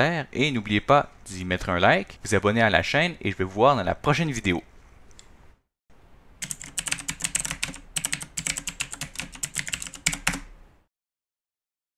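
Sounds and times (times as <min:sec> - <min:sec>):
computer keyboard typing: 0:06.4 - 0:10.6.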